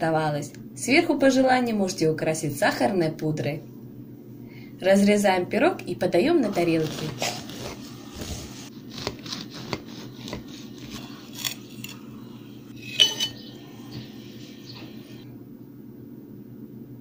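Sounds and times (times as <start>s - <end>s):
low steady hum: 0.0s - 17.0s
knife scraping a plate: 6.8s - 15.2s
cake server clinking: 11.1s - 15.0s
sharp ringing clink: 12.8s - 13.5s.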